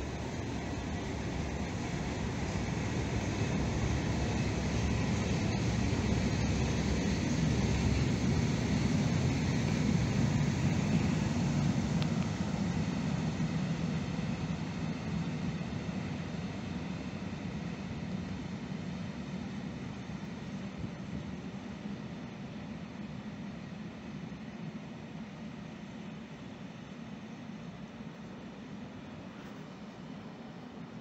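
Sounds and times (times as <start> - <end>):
train wheels rumbling on rails: 0.0 - 21.4.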